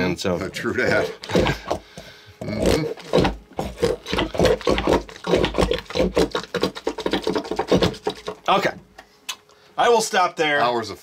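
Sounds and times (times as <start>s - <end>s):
putty fart noises: 0.8s - 1.8s, 2.4s - 8.6s.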